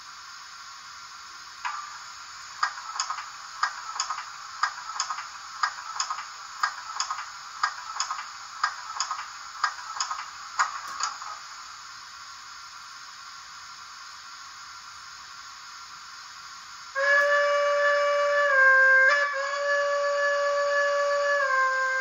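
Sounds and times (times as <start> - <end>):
rhythmic ticking from small speaker: 2.6 - 11.4.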